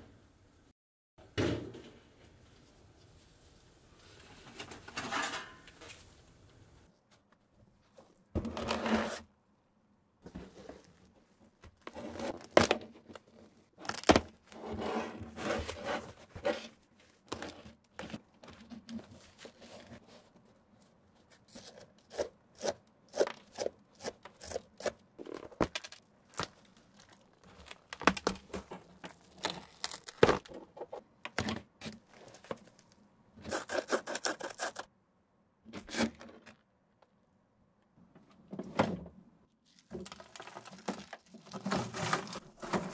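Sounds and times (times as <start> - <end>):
foam tearing and crackling: 13.8 - 14.4, 25.7 - 30.5, 39.7 - 42.8.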